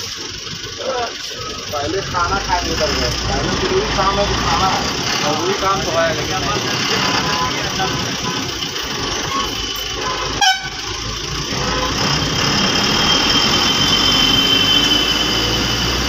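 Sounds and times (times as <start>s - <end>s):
bus engine running: 0.0s - 16.0s
road noise: 0.0s - 16.0s
vehicle horn: 9.4s - 11.0s.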